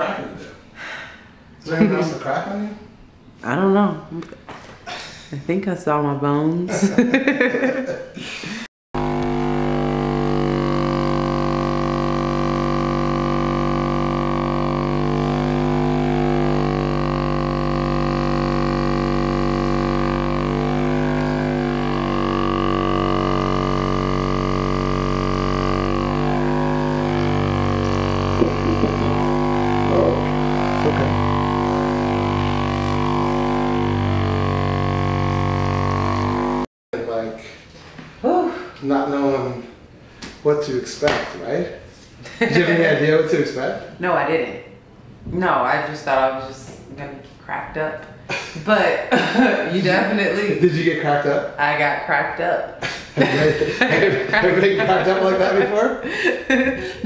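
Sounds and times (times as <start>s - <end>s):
droning background music: 9.0s - 36.6s.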